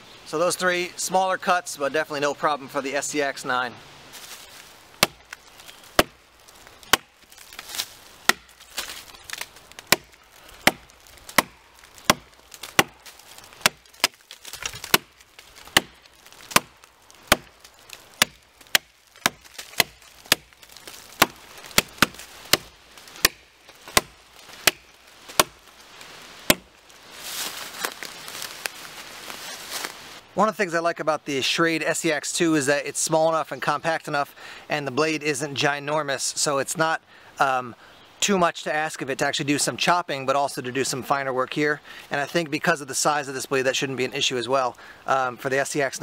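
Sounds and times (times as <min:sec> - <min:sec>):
axe chopping wood: 0:05.0 - 0:06.2, 0:06.8 - 0:25.7, 0:26.4 - 0:26.7.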